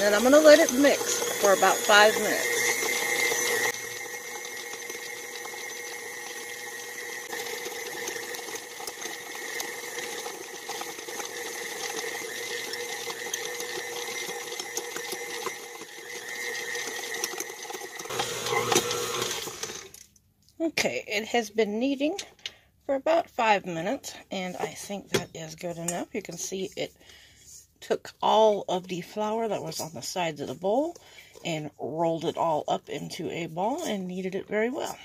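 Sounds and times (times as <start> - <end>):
stand mixer kneading dough: 0.0 - 20.0.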